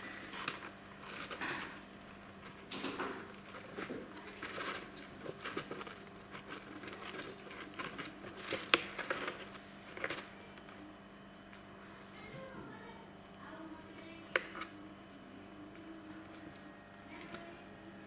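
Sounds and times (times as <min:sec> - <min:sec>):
kitten chewing cardboard: 0:00.5 - 0:10.8.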